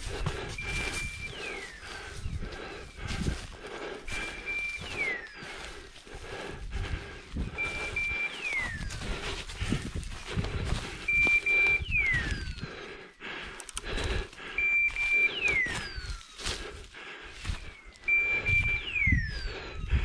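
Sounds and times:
rustling through undergrowth: 0.0s - 12.9s, 13.9s - 18.8s.

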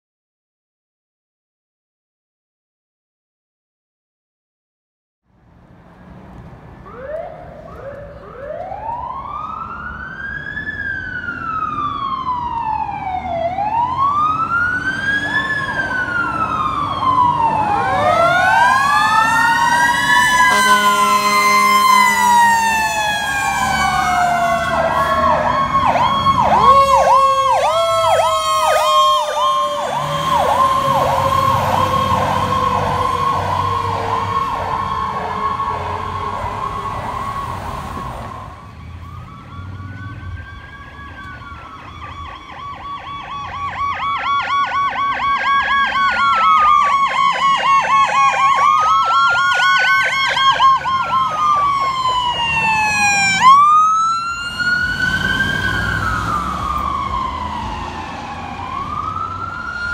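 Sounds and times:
fire truck sirens wailing: 6.5s - 59.9s
pulsing siren yelp: 6.8s - 59.9s
horn blast: 20.4s - 22.5s.

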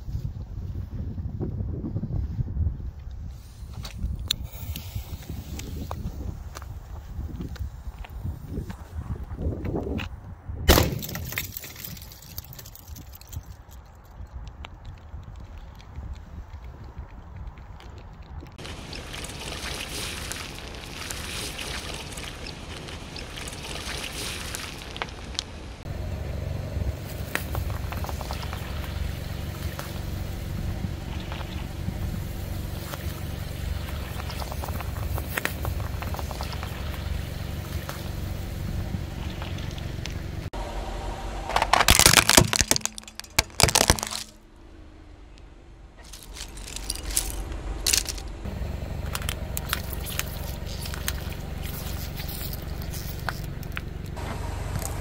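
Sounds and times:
car engine humming: 18.6s - 55.0s
loud crushing and cracking: 41.5s - 44.4s, 46.0s - 54.2s
tyre cracking objects: 41.5s - 44.4s, 46.0s - 54.2s.

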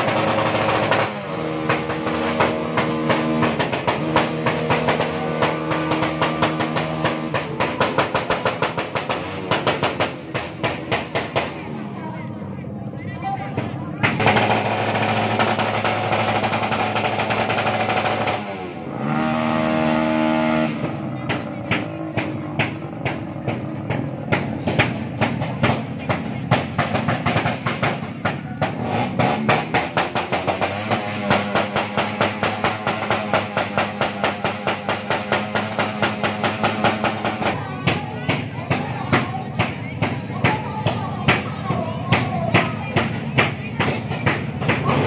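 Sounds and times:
sharp drum-like knocks: 0.0s - 11.7s, 20.8s - 45.0s
crowd noise: 0.0s - 45.0s
vehicle engine revving: 0.0s - 45.0s.

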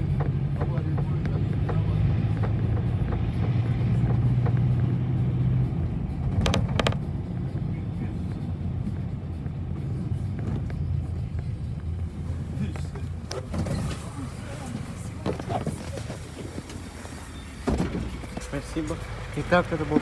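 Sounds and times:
bus engine hum: 0.0s - 20.0s.

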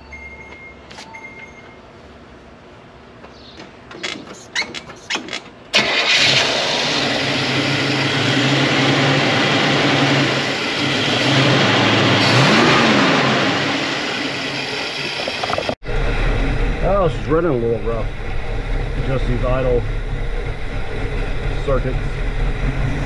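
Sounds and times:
car starter cranking: 4.0s - 8.3s
car engine running: 5.8s - 23.0s.

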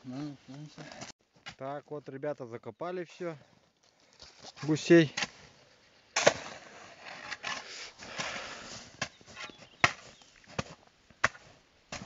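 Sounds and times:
shovel scraping and crunching snow: 6.2s - 12.0s
shovel striking snow: 6.2s - 12.0s.

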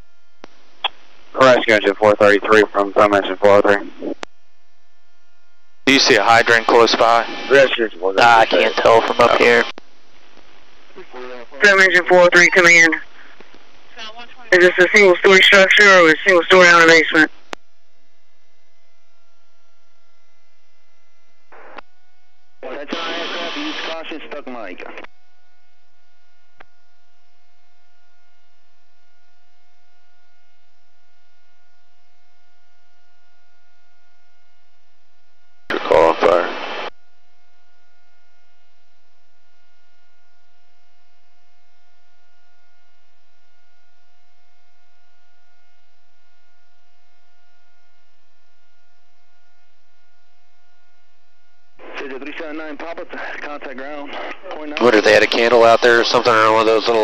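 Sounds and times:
electrical hum with whining pitch: 0.0s - 57.0s
loud burst of radio noise: 5.9s - 9.7s, 11.0s - 13.4s, 14.0s - 17.3s, 22.6s - 25.0s, 35.7s - 36.9s, 51.8s - 57.0s.

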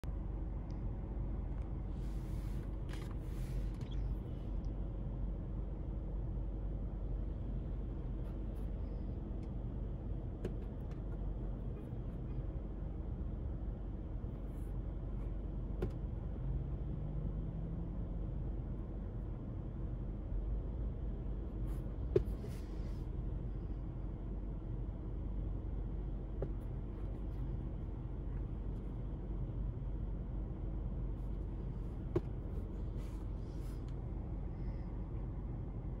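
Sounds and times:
car cabin hum: 0.0s - 36.0s
clicks and taps handling sneakers: 22.1s - 22.7s, 32.0s - 32.7s.

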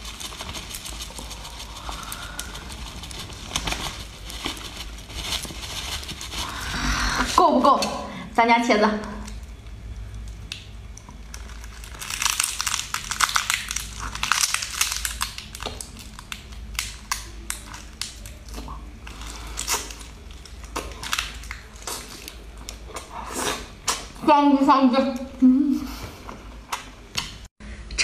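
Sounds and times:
chewing: 15.7s - 24.1s.

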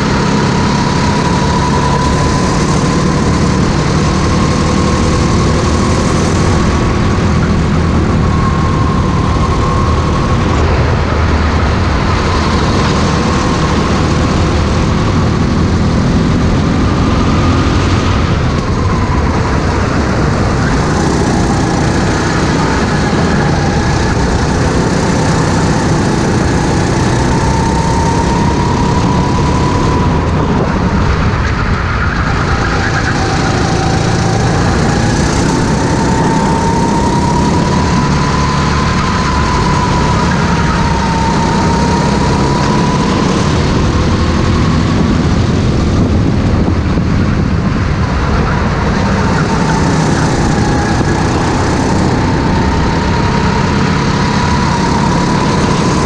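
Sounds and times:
racing kart engine: 0.0s - 56.0s.

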